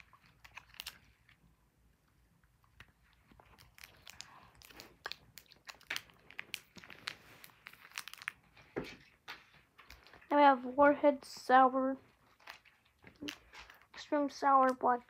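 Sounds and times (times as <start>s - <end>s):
candy chewing and crunching: 0.0s - 11.4s, 12.0s - 15.0s.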